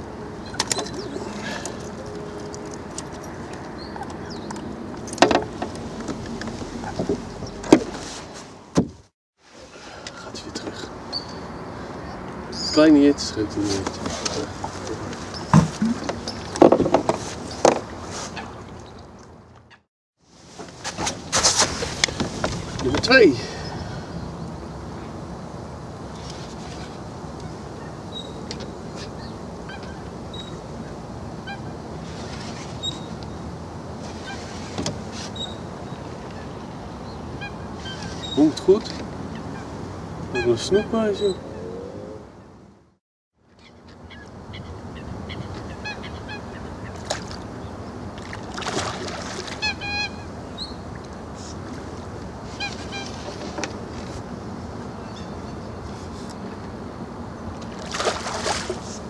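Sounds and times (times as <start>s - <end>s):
water birds honking: 0.3s - 7.8s, 9.7s - 19.8s, 26.8s - 32.2s, 34.1s - 34.8s, 35.4s - 42.5s, 43.5s - 53.8s, 57.3s - 59.0s
distant geese honking: 37.2s - 38.6s, 49.4s - 50.8s.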